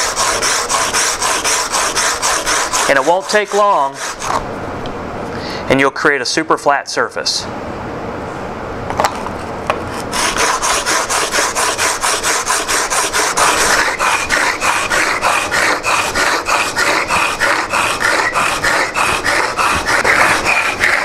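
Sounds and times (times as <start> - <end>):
chisel scraping on sandpaper: 0.0 - 4.4, 10.0 - 21.0.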